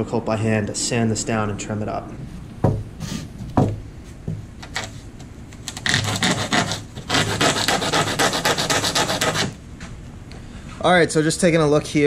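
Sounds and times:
single knock: 0:02.6 - 0:02.9
sandpaper rubbing strokes: 0:05.8 - 0:09.6.

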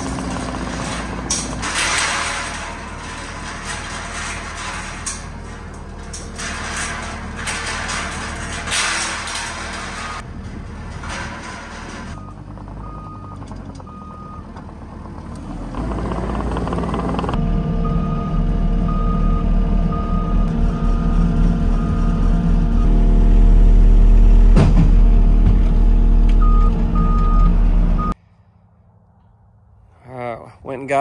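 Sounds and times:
loader engine throttling up: 0:00.0 - 0:08.6, 0:09.6 - 0:28.2.

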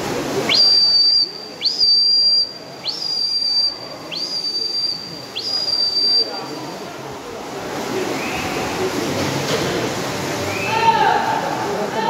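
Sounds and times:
loud high whistles: 0:00.5 - 0:06.9.

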